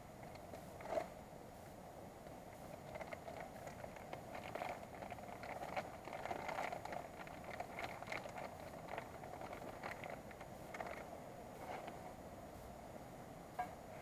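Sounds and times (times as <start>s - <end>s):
campfire crackling and popping: 2.2s - 11.1s.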